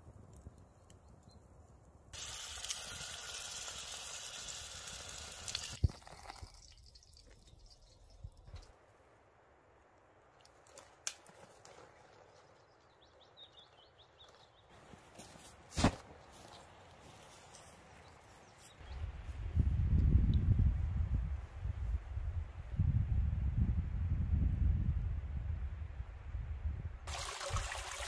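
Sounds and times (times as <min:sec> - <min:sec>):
footsteps through dry grass: 0:14.3 - 0:19.5
rustling in dry grass: 0:14.7 - 0:19.5.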